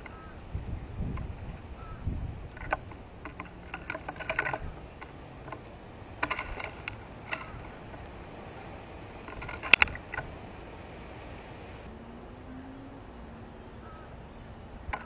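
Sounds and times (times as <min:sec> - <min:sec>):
birds pecking on wood: 0:02.4 - 0:10.4.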